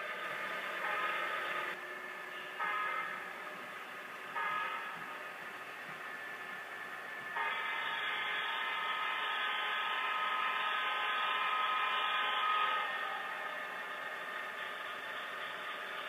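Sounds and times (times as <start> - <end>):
model locomotive running: 0.0 - 16.0
model locomotive horn: 2.3 - 3.4, 7.4 - 16.0.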